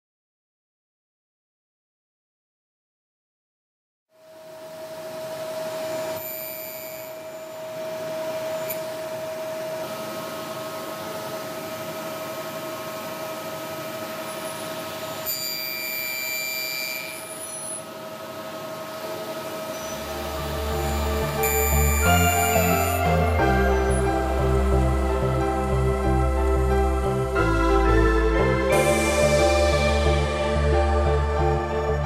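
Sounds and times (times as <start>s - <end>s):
table saw whining: 4.3s - 31.0s
saw blade cutting wood: 19.1s - 23.2s.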